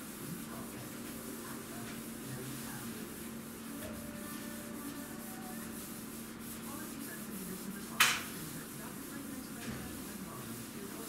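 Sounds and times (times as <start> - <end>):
scrubbing kitchen counter: 0.0 - 11.0.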